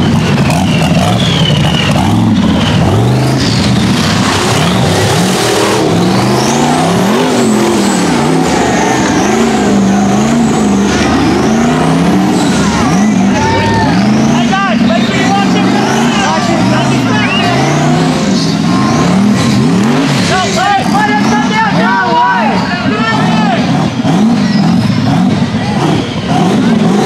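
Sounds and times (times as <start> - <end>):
buggy engine revving hard: 0.0 - 27.0
high whine rising and falling: 1.4 - 22.3.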